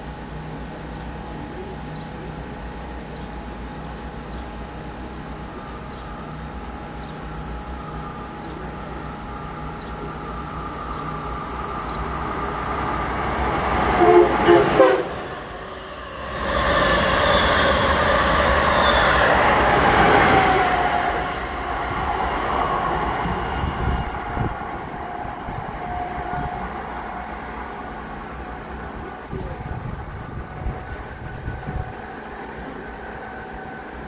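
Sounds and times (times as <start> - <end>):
train rushing past: 2.4 - 34.0
train horn blasts: 13.8 - 15.6.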